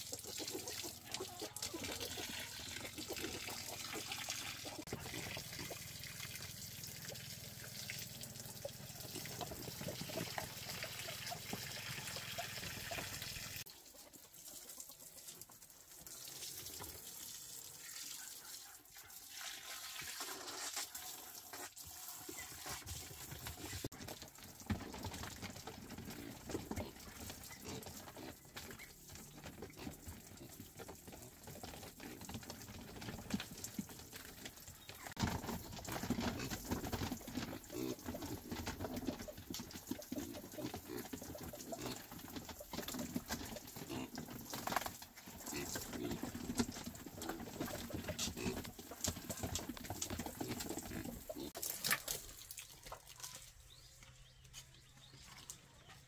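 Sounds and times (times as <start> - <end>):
hose water splashing on slats: 0.0 - 55.9
piglets grunting and snuffling: 24.7 - 34.1, 35.2 - 52.4.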